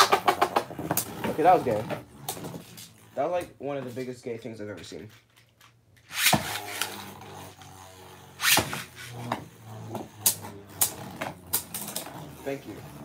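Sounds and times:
ripcord launcher rasping zip: 6.0 - 13.0.

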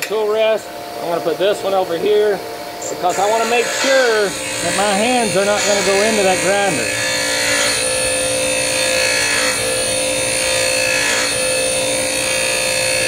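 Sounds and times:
grinding gritty hiss: 2.0 - 11.2
bench grinder motor hum: 2.8 - 13.0.

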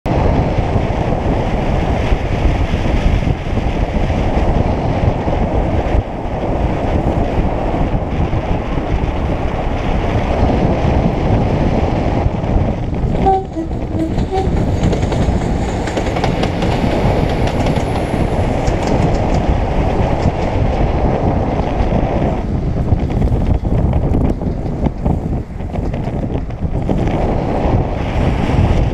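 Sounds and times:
wind rushing over microphone: 0.0 - 28.9
two-note train horn: 13.1 - 14.9.

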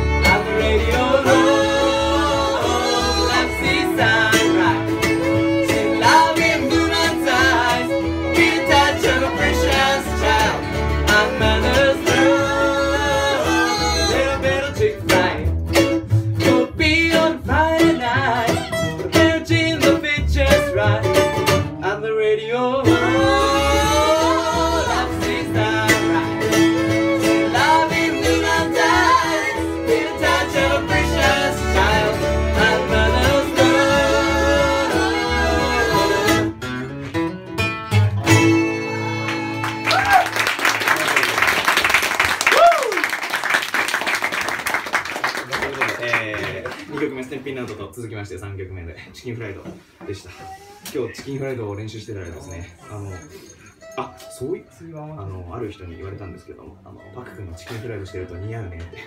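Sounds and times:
fiddle: 0.0 - 21.9, 22.5 - 40.3, 52.8 - 59.0
resonator guitar: 0.0 - 40.3, 50.4 - 59.0
mandolin: 0.0 - 42.4, 49.5 - 59.0
upright bass: 0.0 - 42.8, 54.0 - 59.0
acoustic guitar: 0.0 - 59.0
group vocals singing: 0.1 - 15.4, 22.6 - 26.5, 27.2 - 36.6.

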